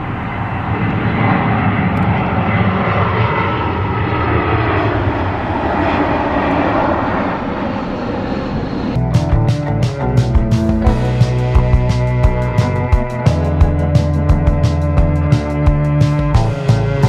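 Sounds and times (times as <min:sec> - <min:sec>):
jet airliner passing overhead: 0:00.0 - 0:17.0.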